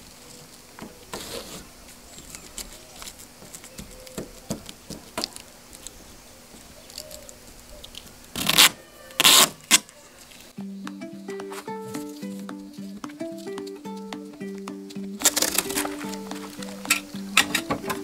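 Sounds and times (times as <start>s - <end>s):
duct tape ripping off roll: 8.0s - 10.5s, 15.2s - 17.4s
tape crinkling and tapping: 10.9s - 18.0s.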